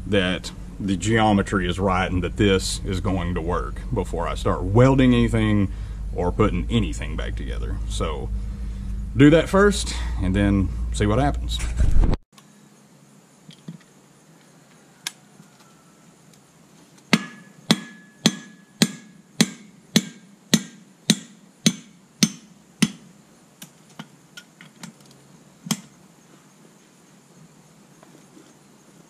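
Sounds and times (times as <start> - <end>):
hammer striking metal: 17.1 - 23.0.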